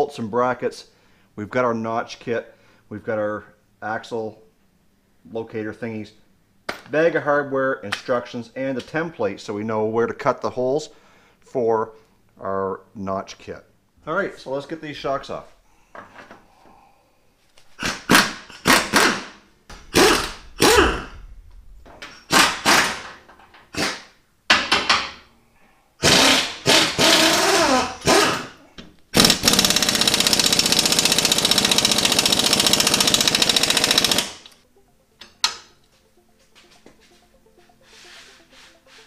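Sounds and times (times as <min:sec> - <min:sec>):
impact wrench bursts: 0:17.8 - 0:21.1, 0:22.1 - 0:24.1, 0:26.0 - 0:34.6.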